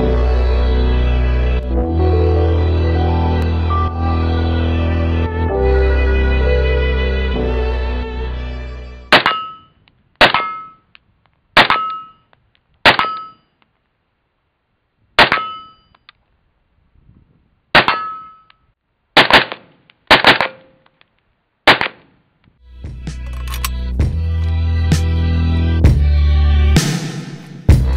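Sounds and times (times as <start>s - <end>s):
ringing tone after shots: 13.0s - 13.6s, 15.3s - 16.1s
rifle gunshots: 19.2s - 20.7s, 21.7s - 22.1s.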